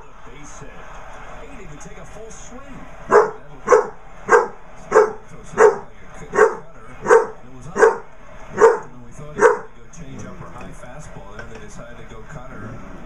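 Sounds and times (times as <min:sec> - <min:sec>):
puppy barking: 0:03.1 - 0:09.7.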